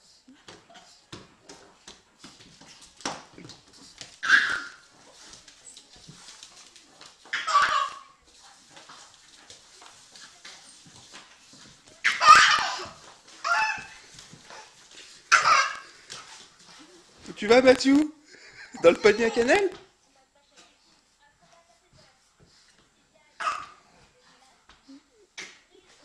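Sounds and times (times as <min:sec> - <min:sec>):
scuffling on hard floor: 0:00.5 - 0:18.1
dog yapping: 0:04.2 - 0:04.8, 0:07.3 - 0:08.2, 0:12.0 - 0:14.0, 0:15.3 - 0:15.9
baby laughing: 0:07.4 - 0:08.1, 0:12.0 - 0:13.8, 0:15.3 - 0:15.9.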